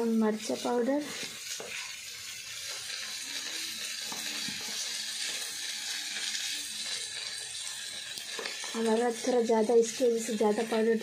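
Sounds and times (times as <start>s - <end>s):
onions frying in oil: 0.0s - 11.0s.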